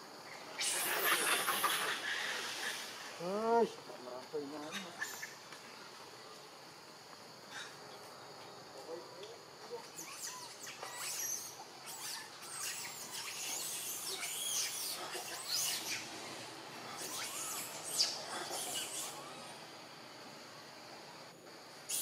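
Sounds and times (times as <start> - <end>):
high insect drone: 0.0 - 22.0
quick high-pitched chirping calls: 10.0 - 16.0.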